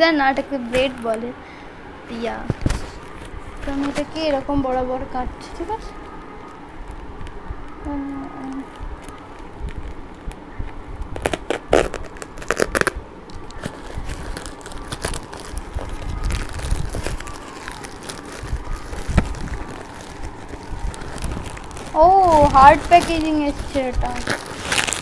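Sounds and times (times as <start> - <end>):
plastic bag rustling: 2.1 - 25.0
plastic bag crinkling and tearing: 5.6 - 25.0.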